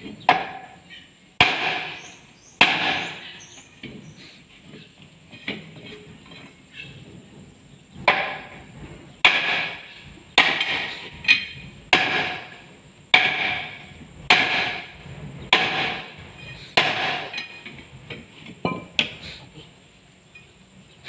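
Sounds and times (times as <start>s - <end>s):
sledgehammer striking steel bar: 1.4s - 3.5s, 8.0s - 8.6s, 9.2s - 14.9s, 15.5s - 17.7s.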